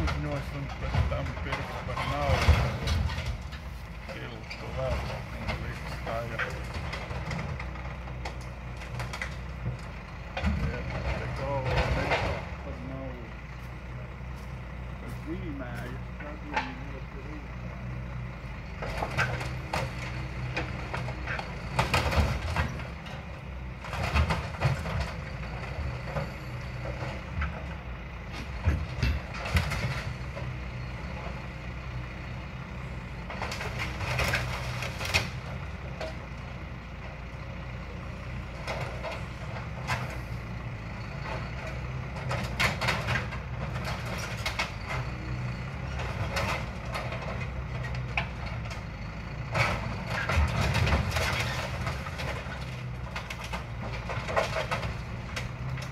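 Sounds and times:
diesel engine running: 0.0s - 55.9s
metal clanks and scrapes: 10.4s - 12.6s, 49.5s - 55.5s.

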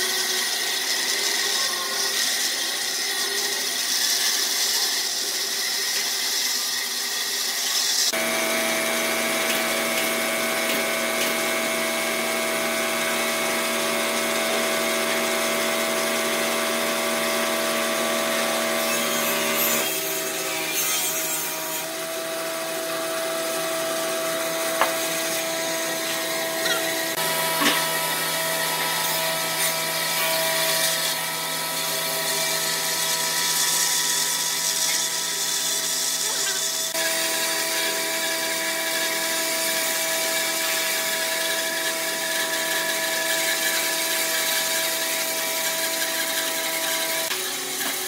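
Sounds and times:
bandsaw motor hum: 0.0s - 48.0s.

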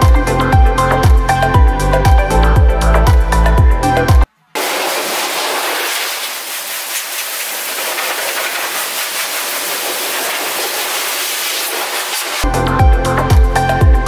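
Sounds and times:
electronic music with a beat: 0.0s - 4.3s, 12.4s - 14.0s
steady hiss: 4.6s - 12.5s.

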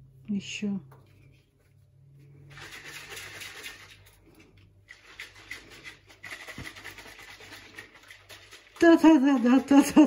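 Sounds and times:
shaker bottle sloshing: 2.4s - 10.0s.

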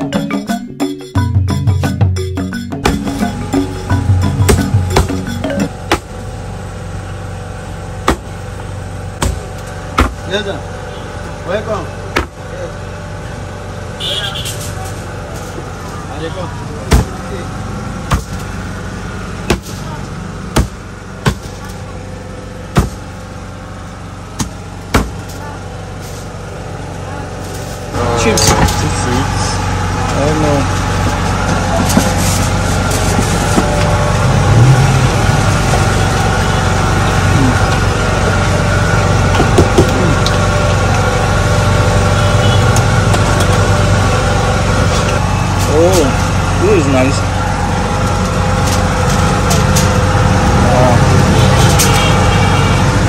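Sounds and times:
engine humming steadily: 0.0s - 53.0s
cleaver chopping on wooden board: 10.0s - 10.2s, 19.5s - 19.7s, 24.4s - 25.2s.

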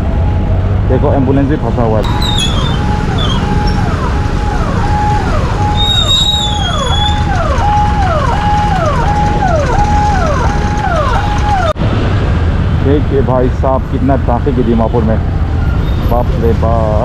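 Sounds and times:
ambulance siren: 0.0s - 11.8s
motorcycle and traffic engines: 0.0s - 17.0s.

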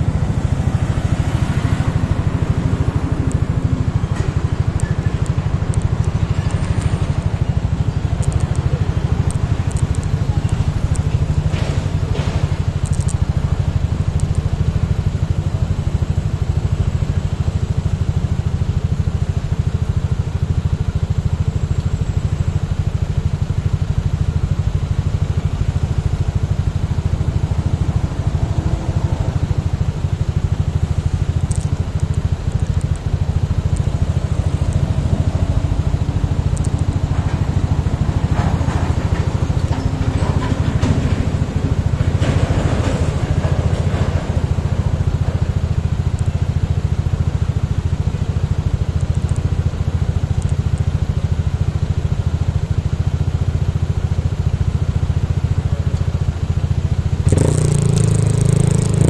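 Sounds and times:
motorcycle engine idling: 0.0s - 59.0s.

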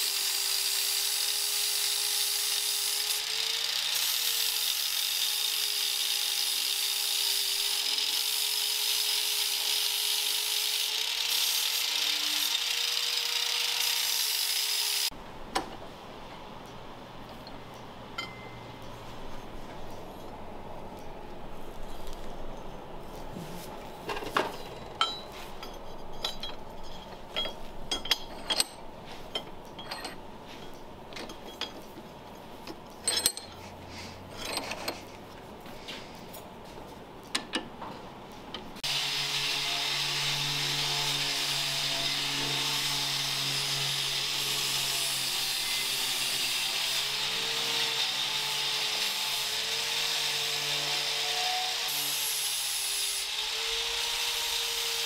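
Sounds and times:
power tool motor on metal: 0.0s - 15.1s, 38.8s - 55.0s.

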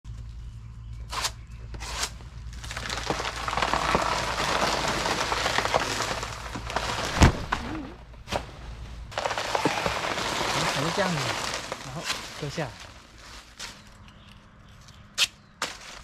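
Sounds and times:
plastic bag rustling: 2.6s - 14.0s
heavy thump: 7.0s - 8.5s.

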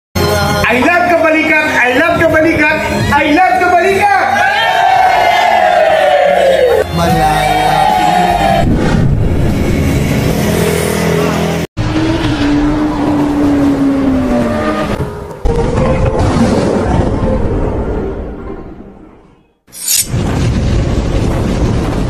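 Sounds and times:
vehicle engines revving: 8.7s - 16.3s.

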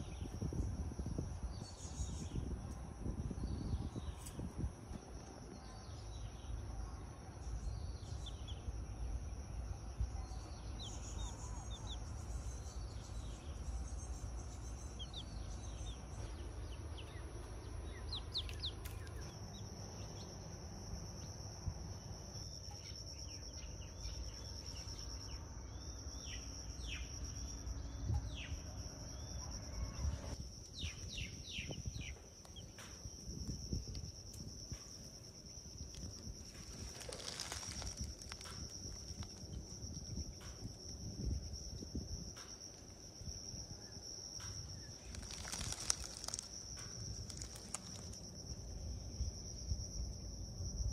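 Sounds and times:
high insect drone: 0.0s - 50.9s
baby chick peeping: 18.0s - 19.3s.

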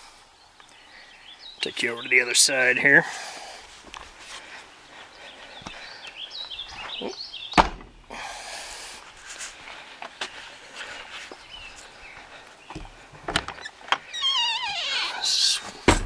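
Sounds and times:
hard thump: 7.6s - 8.0s
footsteps on dirt: 9.1s - 13.3s.

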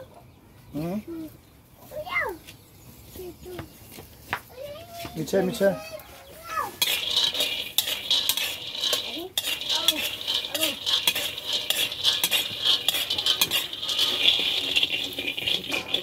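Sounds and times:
ladle scraping wok: 6.6s - 16.0s
nuts rattling in pan: 6.7s - 16.0s.

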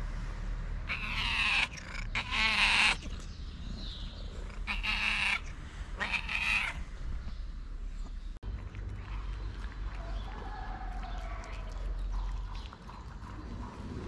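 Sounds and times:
cat meowing: 4.6s - 6.8s.

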